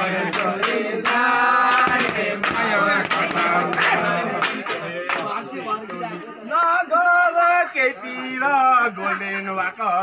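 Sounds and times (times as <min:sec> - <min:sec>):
people singing folk song: 0:00.0 - 0:09.7
claps keeping time: 0:00.2 - 0:06.8.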